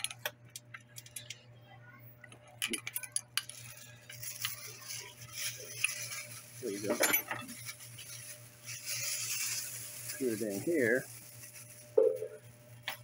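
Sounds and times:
metal tools rattling: 2.6 - 8.2.

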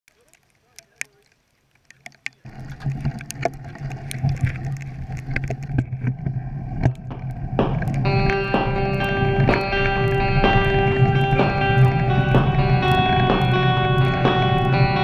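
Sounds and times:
crackles and rattles: 0.1 - 15.0
bike tyres rumbling on snow: 2.5 - 15.0
wind on microphone: 2.5 - 15.0
guitar music: 7.1 - 15.0.

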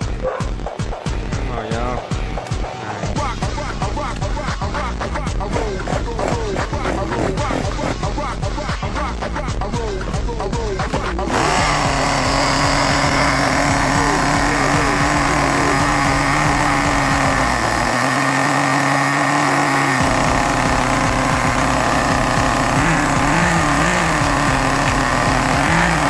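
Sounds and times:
small nitro engine idling: 9.7 - 26.0.

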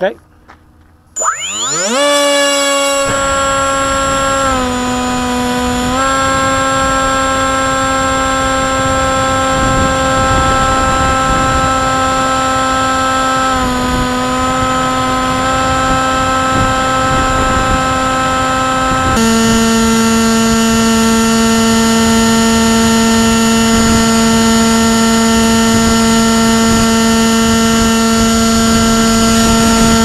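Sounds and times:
electric motor propeller whine: 1.2 - 30.0
wind rushing across microphone: 3.0 - 19.2.

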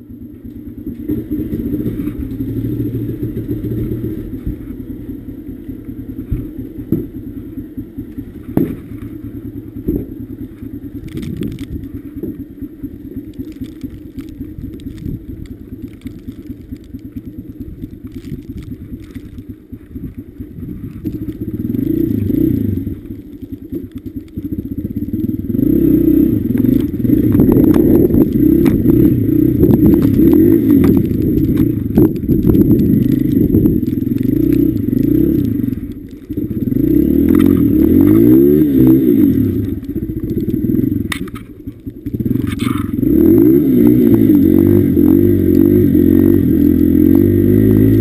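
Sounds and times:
dirt bike engine idling: 0.0 - 48.0
sharp knocks and clatters: 8.4 - 9.2.

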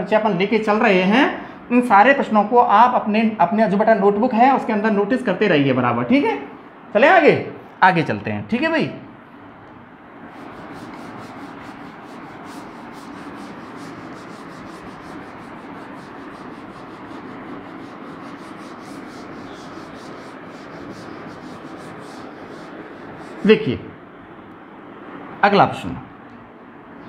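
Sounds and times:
duster rubbing chalkboard: 10.3 - 23.9.

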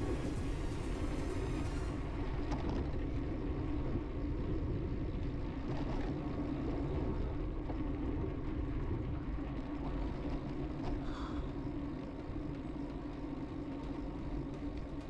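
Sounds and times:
wind rush: 0.0 - 5.2
bicycle tyres rolling on pavement: 0.0 - 15.0.

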